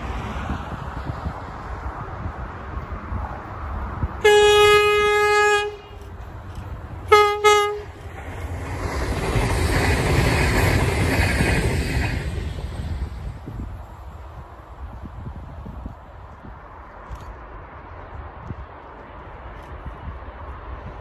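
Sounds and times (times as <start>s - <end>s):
train passing rumble: 0.0s - 21.0s
train horn blasts: 4.2s - 6.2s, 7.0s - 8.0s.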